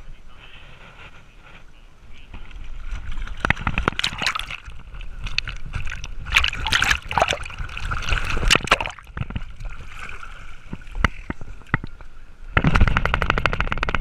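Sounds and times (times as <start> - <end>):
pool water splashing: 2.8 - 12.1.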